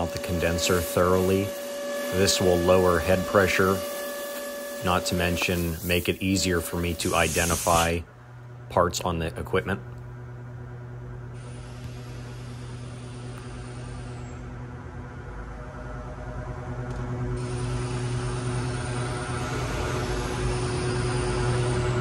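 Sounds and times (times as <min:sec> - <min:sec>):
compressed air hissing: 0:00.0 - 0:08.0, 0:11.4 - 0:14.2, 0:17.4 - 0:21.6
machinery hum: 0:00.0 - 0:22.0.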